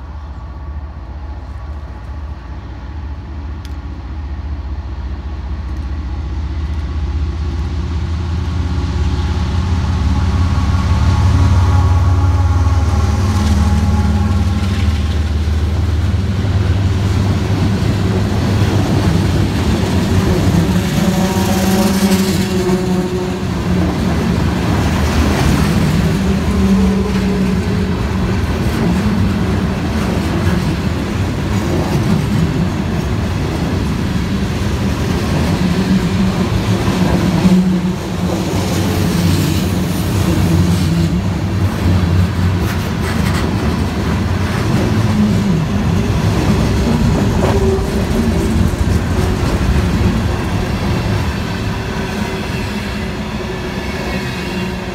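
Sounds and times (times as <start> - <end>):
train wheels rumbling on rails: 0.0 - 54.9
clickety-clack over rail joints: 13.3 - 54.9.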